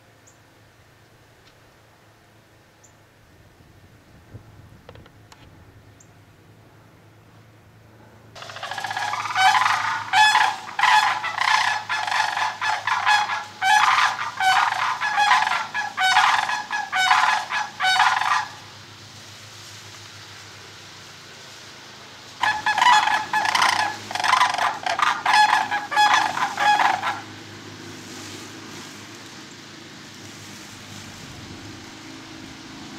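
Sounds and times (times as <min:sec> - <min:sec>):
cranes rattling bugle calls: 0:08.4 - 0:19.1, 0:22.4 - 0:31.0.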